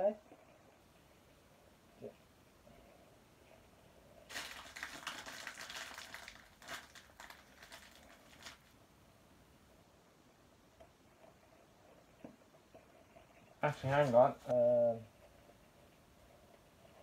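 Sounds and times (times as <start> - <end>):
paper wrapping crinkling and tearing: 4.3 - 8.8.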